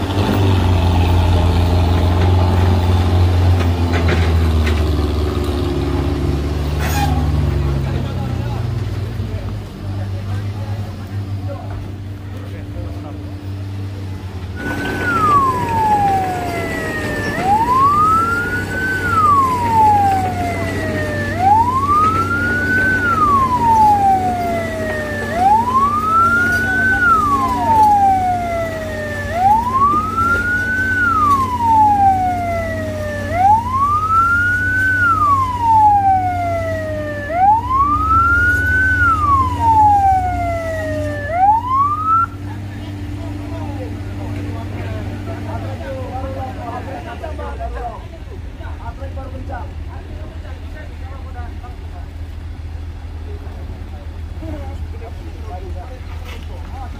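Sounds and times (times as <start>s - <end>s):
engine running: 0.0s - 56.9s
ambulance siren wailing: 14.6s - 42.7s.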